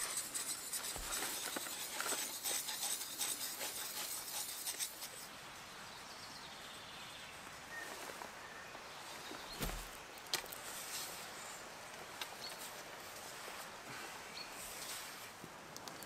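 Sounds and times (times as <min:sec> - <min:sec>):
sharpening stone scraping blade: 0:00.0 - 0:05.2.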